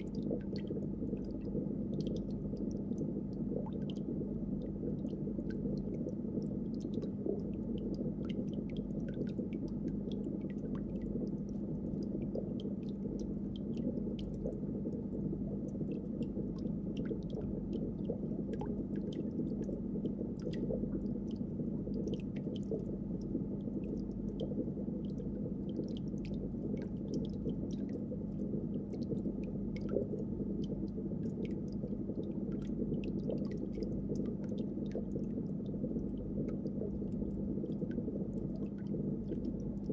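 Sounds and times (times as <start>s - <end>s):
faint ticks and clicks: 0.0s - 39.9s
soft water noise: 0.0s - 39.9s
steady low hum: 0.0s - 39.9s.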